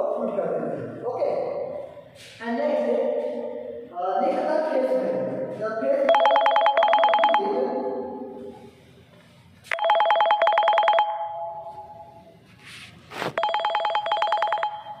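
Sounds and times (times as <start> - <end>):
telephone bell ringing: 6.1 - 7.6, 9.7 - 12.2, 13.4 - 15.0.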